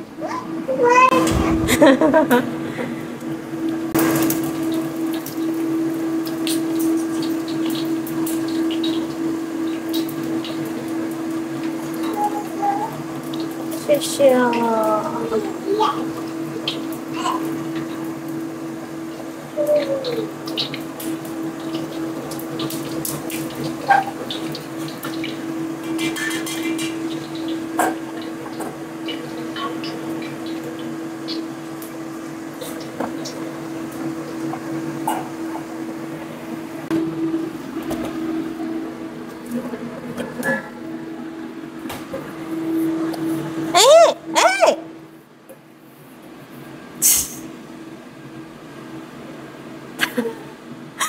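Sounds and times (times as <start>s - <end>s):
steady low hum: 0.0s - 6.1s
steady hum: 0.0s - 51.0s
hot oil sizzling in a wok: 0.8s - 39.4s, 47.0s - 47.8s.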